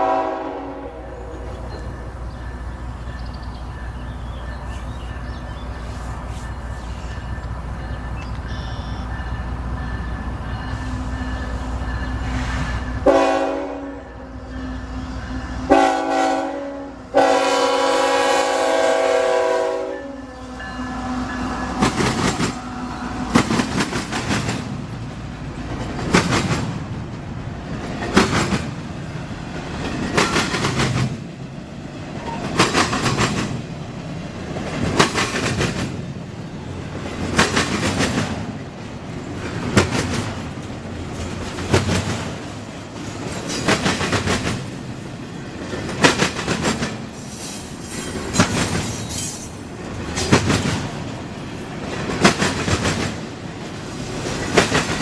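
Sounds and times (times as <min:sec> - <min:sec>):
train horn blasts: 0:00.0 - 0:01.7, 0:08.5 - 0:23.5
train rolling noise: 0:00.0 - 0:55.0
train wheels clacking: 0:19.3 - 0:33.8, 0:34.4 - 0:55.0.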